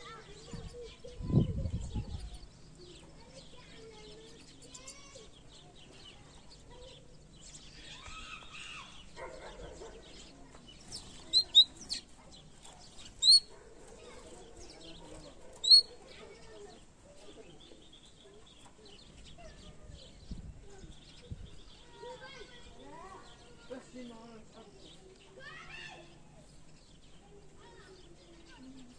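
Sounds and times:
canary chirping: 2.3s - 20.1s.

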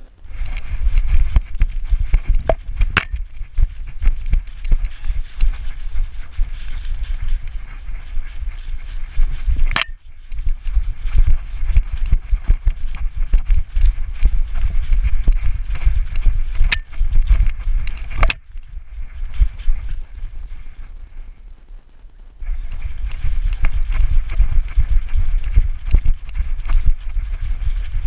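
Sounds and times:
leaves crunching: 0.3s - 20.8s.

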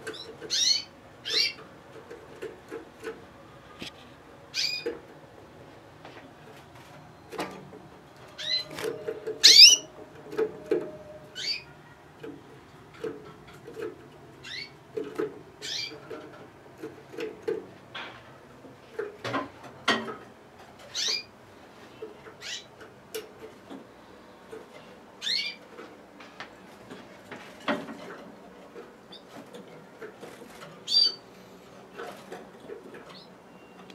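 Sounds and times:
canaries chirping: 0.0s - 1.7s, 4.5s - 5.0s, 8.3s - 9.9s, 11.3s - 11.7s, 14.4s - 14.8s, 15.6s - 16.3s, 20.8s - 21.3s, 22.4s - 22.8s, 25.2s - 25.7s, 30.5s - 31.3s.

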